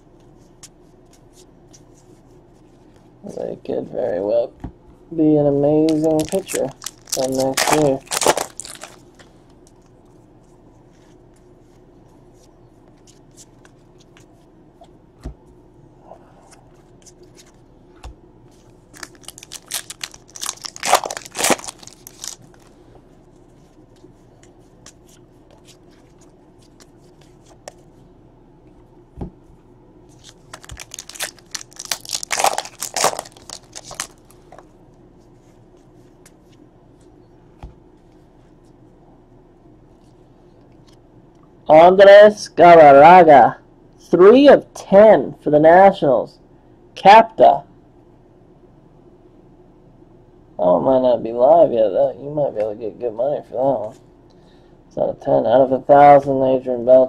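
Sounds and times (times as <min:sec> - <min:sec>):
foil wrappers tearing and crinkling: 0:05.9 - 0:09.0, 0:18.9 - 0:22.7, 0:30.2 - 0:34.3.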